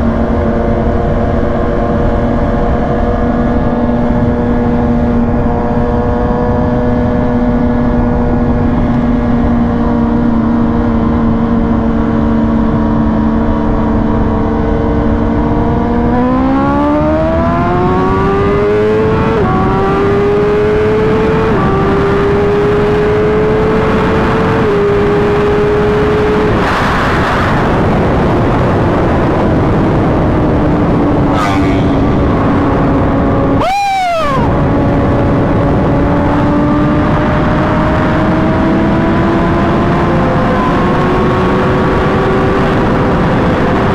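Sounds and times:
engine accelerating through gears: 0:00.0 - 0:43.9
rushing noise: 0:31.0 - 0:34.8.

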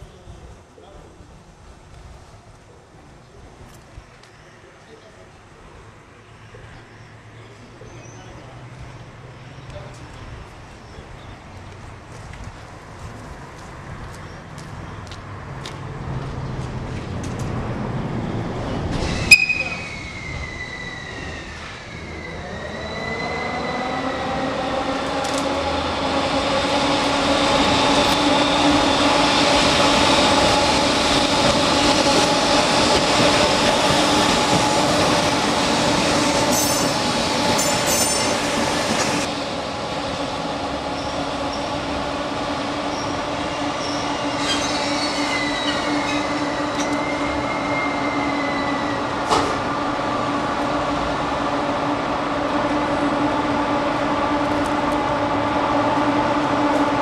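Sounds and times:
electric locomotive rumbling past: 0:08.3 - 0:57.0
wheel squeal on curved track: 0:18.9 - 0:24.4, 0:36.4 - 0:38.5, 0:42.9 - 0:49.1.

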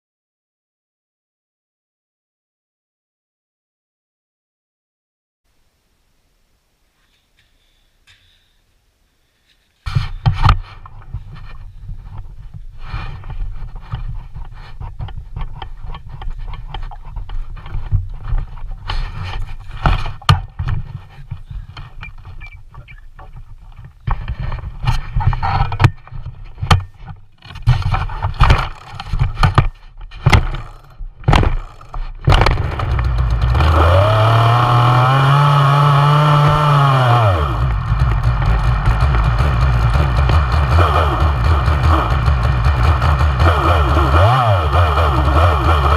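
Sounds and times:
chainsaw cord pulls: 0:27.4 - 0:45.9
chainsaw knocking when set down: 0:28.3 - 0:44.4
chainsaw engine revving and idling: 0:30.4 - 0:45.9.

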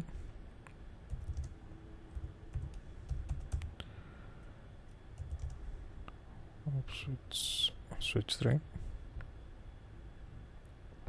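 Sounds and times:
typing on computer keyboard: 0:01.1 - 0:03.7, 0:05.2 - 0:05.6.

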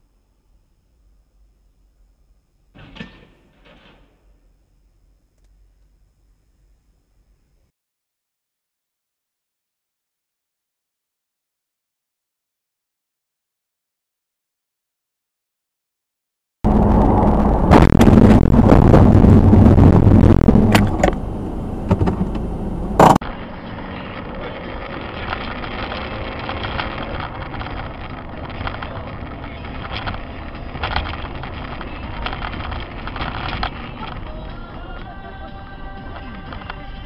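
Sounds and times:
car road noise: 0:16.7 - 0:37.0
sharp bang: 0:16.9 - 0:21.2.

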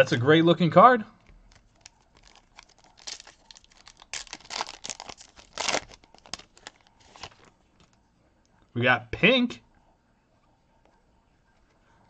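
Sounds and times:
foil wrapper tearing and crinkling: 0:01.5 - 0:08.0.

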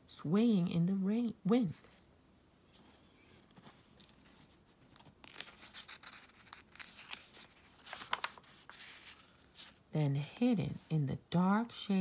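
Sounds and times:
paper rustling and crinkling: 0:02.7 - 0:09.8.

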